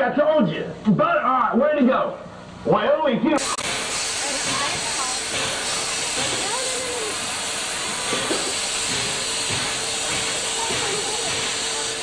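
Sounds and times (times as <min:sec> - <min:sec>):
faint voices: 0:03.4 - 0:12.0
steam locomotive hissing: 0:03.4 - 0:12.0.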